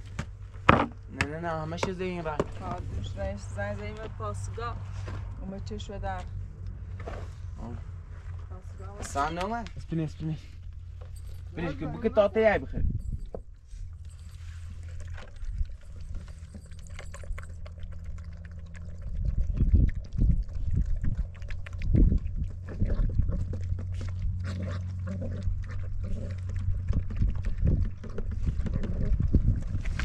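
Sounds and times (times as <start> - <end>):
steady low hum: 0.0 - 30.0
dog eating from plastic bowl: 9.0 - 30.0.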